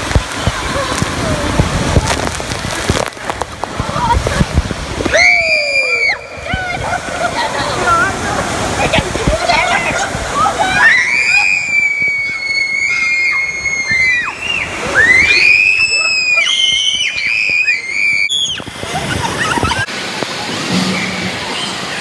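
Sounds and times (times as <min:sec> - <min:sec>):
water rushing through slide tube: 0:00.0 - 0:22.0
water splashing: 0:00.0 - 0:22.0.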